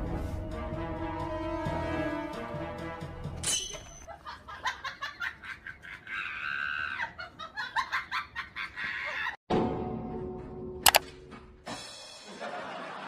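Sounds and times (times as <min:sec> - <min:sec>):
girls giggling and laughing: 0:04.0 - 0:09.4.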